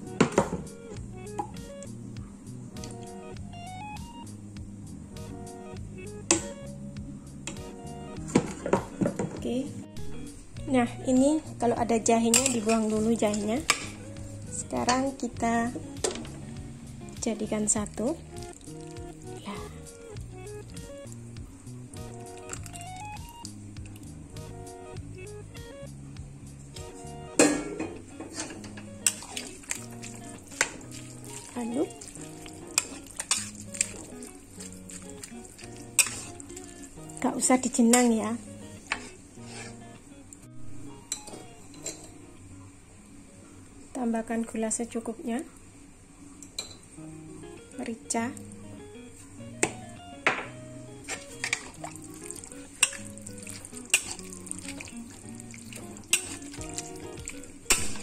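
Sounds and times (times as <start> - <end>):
soft background music: 0.0 - 58.0
batter squelching and sloshing: 17.6 - 20.9, 21.9 - 24.0, 29.0 - 38.4, 51.0 - 58.0
spatula clinking against pan: 52.8 - 53.2.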